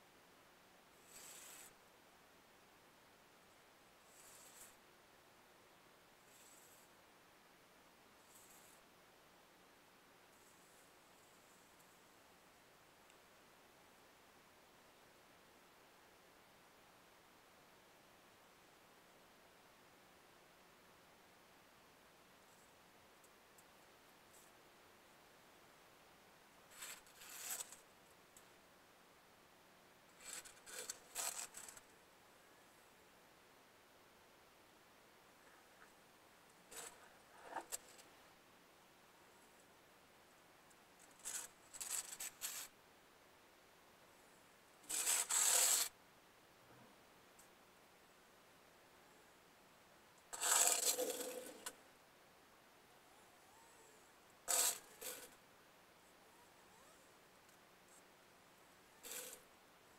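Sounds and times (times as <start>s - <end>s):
faint steady hiss: 0.0s - 59.9s
scraping or rubbing noise: 26.7s - 27.8s, 30.2s - 31.9s, 36.7s - 38.1s, 41.0s - 42.7s, 44.8s - 46.0s, 50.3s - 51.8s, 54.5s - 55.4s, 59.0s - 59.4s.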